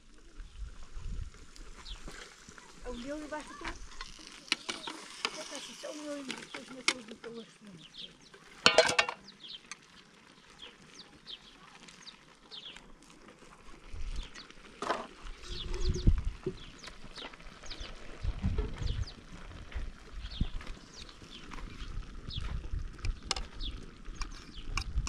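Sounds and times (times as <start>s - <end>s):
small birds chirping: 1.5s - 25.0s
dull low thumps: 18.2s - 20.6s.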